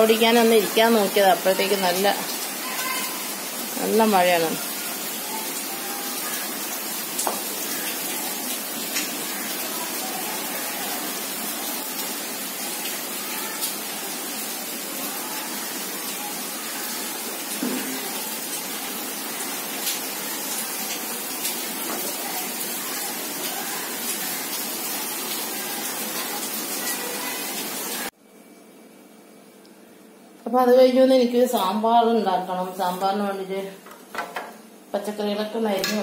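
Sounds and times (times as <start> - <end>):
heavy rain falling: 0.0 - 28.1.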